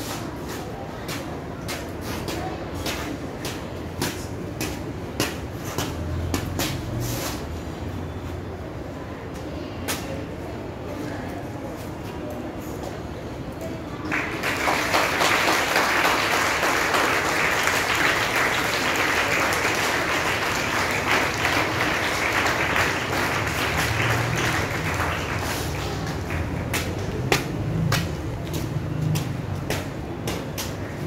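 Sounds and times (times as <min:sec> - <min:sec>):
audience applauding: 0:14.0 - 0:27.2.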